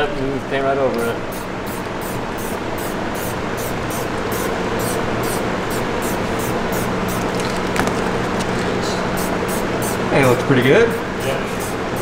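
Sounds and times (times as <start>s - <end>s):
steady low hum: 0.0s - 12.0s
spray paint can hissing: 1.3s - 7.4s, 9.2s - 10.1s, 10.9s - 12.0s.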